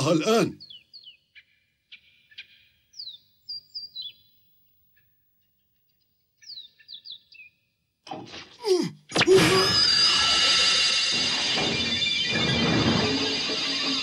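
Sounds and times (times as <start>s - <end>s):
birds chirping: 0.0s - 7.9s.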